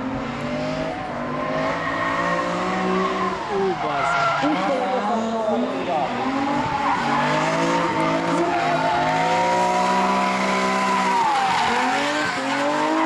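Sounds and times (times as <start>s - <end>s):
car engine revving high: 0.0s - 13.0s
tyres squealing: 3.0s - 13.0s.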